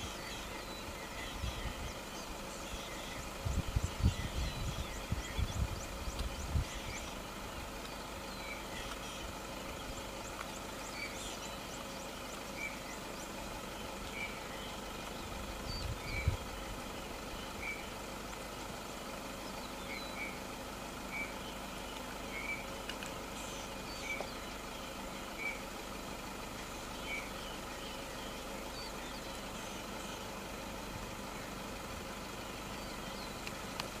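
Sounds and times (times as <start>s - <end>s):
mechanical hum: 0.0s - 18.0s.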